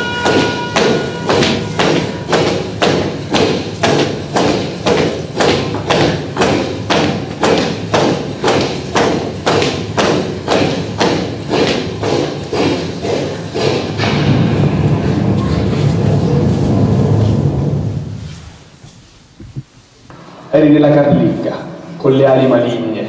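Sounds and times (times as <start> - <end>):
drum beat: 0.0 - 16.9.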